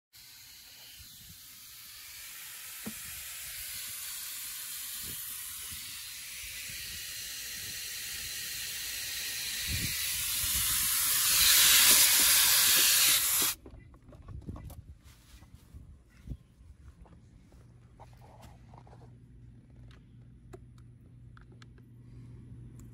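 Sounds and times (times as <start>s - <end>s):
pressurised gas hissing: 0.2s - 13.6s.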